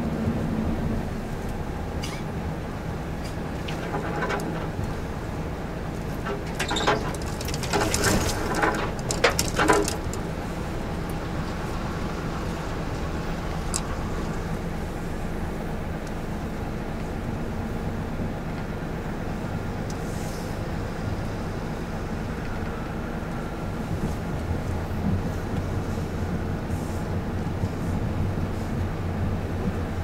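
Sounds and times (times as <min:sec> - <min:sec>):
sharp crackles and scrapes: 0:06.1 - 0:10.3.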